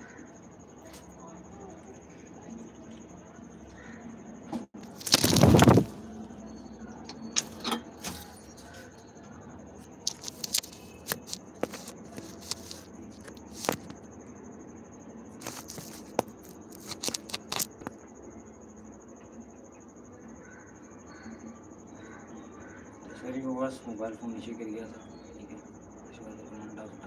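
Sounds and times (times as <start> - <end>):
phone clattering onto ground: 4.9 - 5.9
phone handling knocks and scrapes: 10.1 - 14.0, 15.4 - 17.9.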